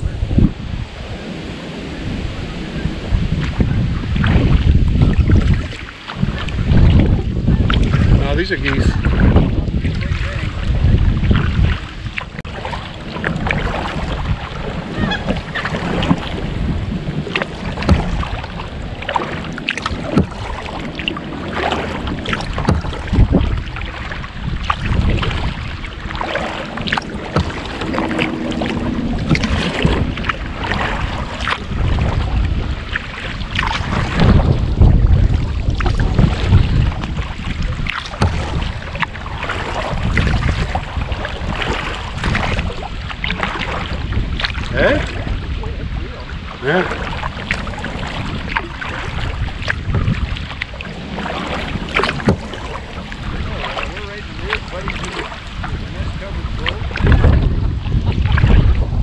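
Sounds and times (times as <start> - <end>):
paddle strokes splashing: 0.0 - 59.0
wind on microphone: 0.0 - 59.0.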